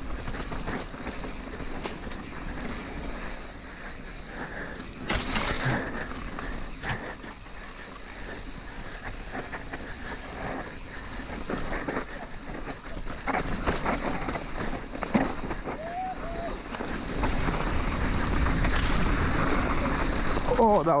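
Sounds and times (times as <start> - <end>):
bike rattling: 0.0 - 21.0
tires rolling over dirt: 0.0 - 21.0
wind on microphone: 8.4 - 20.7.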